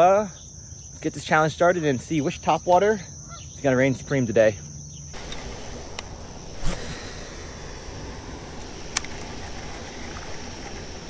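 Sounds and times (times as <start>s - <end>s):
faint high insect drone: 0.0s - 11.0s
outdoor hiss: 5.0s - 11.0s.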